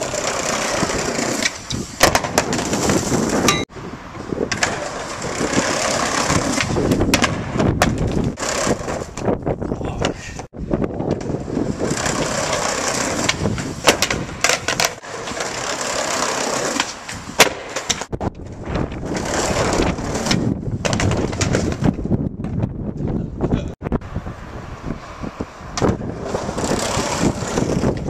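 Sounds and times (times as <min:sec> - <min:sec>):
skateboard clacking on ground: 0:00.0 - 0:03.7, 0:04.5 - 0:09.3, 0:11.0 - 0:22.6
skateboard wheels rolling on concrete: 0:00.0 - 0:28.0.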